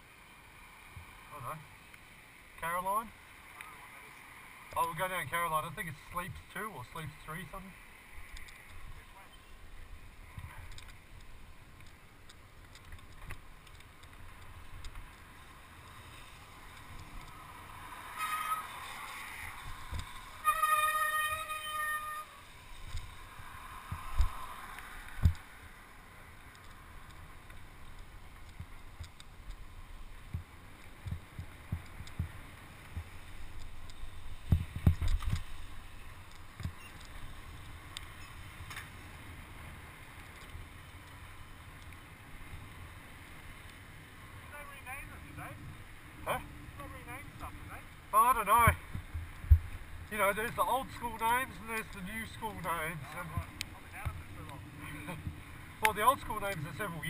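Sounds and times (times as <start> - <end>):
tyre hiss on wet asphalt: 9.7 - 44.5
wind rushing over microphone: 15.8 - 20.5, 22.5 - 39.9.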